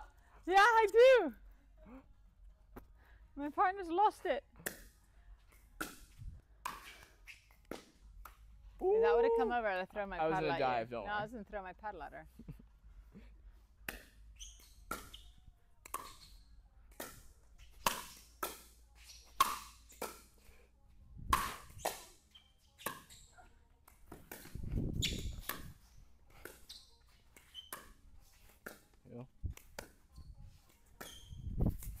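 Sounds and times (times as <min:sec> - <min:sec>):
ball bouncing on court: 0:24.1 - 0:25.8.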